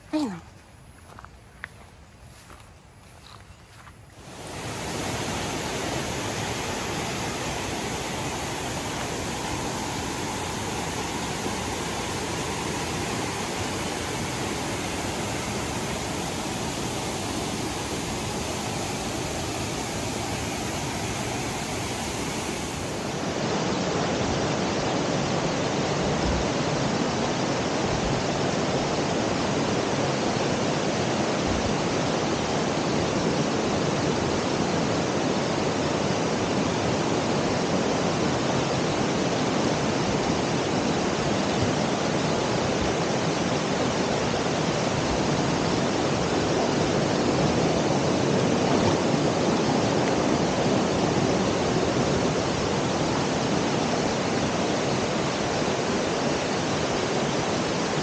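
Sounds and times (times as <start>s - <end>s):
waterfall rushing: 4.2s - 26.0s.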